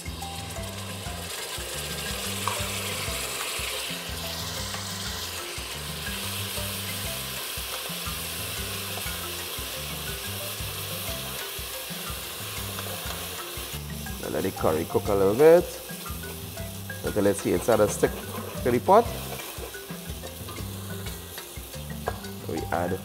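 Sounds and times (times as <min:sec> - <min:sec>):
paste sizzling in hot oil: 0:00.0 - 0:23.0
wooden spoon stirring in pot: 0:17.0 - 0:21.3.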